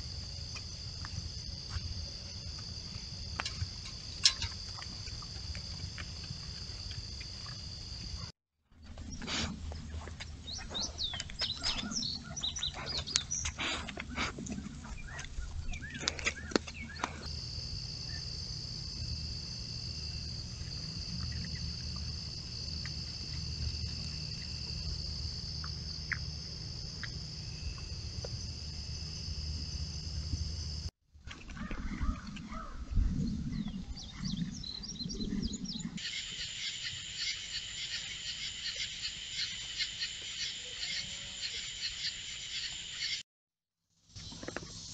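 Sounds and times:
birds chirping and singing: 9.9 - 17.3, 32.0 - 43.2
high-pitched insect chorus: 16.5 - 30.9, 34.6 - 43.2
low microphone rumble: 31.5 - 36.0.

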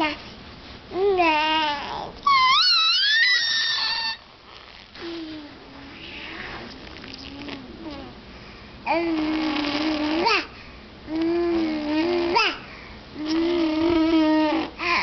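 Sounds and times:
baby babbling: 1.0 - 4.2, 8.9 - 10.5, 11.1 - 12.6, 13.2 - 15.0.

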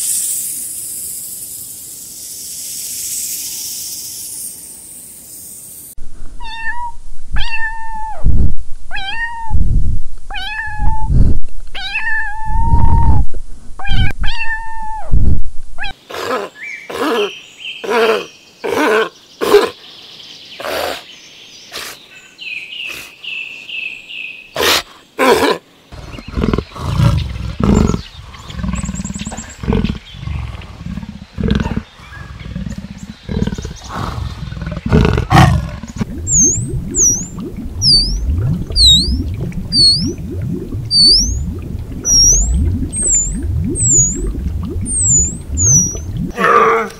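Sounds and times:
kitten meowing: 6.4 - 8.2, 8.9 - 9.6, 10.3 - 11.1
low repeated animal sounds: 24.6 - 46.9.

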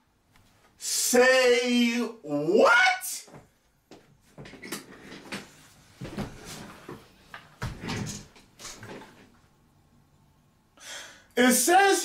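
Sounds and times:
desk chair knocks and rustles: 4.4 - 9.3.

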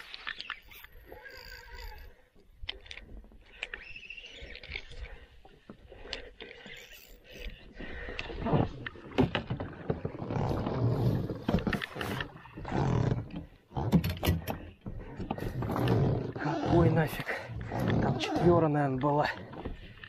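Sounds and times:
boat knocks and rustling: 8.4 - 16.9.

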